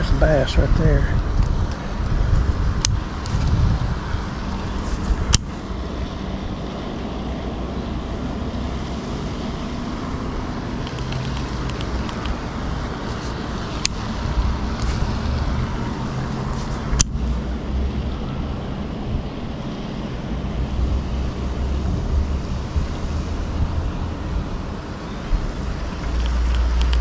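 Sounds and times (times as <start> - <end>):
low outdoor rumble: 0.0 - 27.0
sharp click: 10.8 - 12.4.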